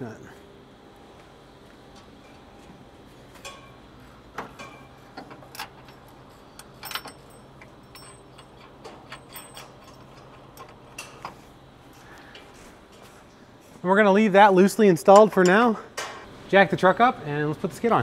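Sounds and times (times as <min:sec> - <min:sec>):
metal washers clinking: 0:04.6 - 0:11.4, 0:15.1 - 0:16.3.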